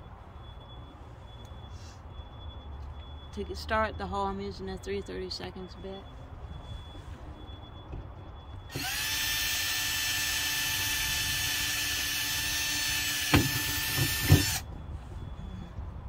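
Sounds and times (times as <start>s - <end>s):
cordless drill drilling metal: 8.7s - 14.6s.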